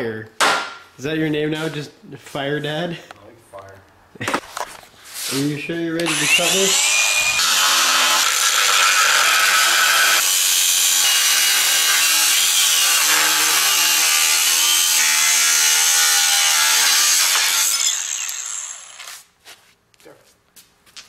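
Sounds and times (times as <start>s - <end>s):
angle grinder cutting metal: 6.0s - 19.2s.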